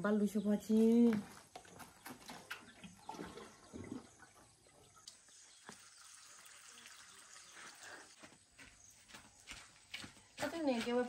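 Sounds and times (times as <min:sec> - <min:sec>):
water sloshing and dripping: 0:01.5 - 0:08.2.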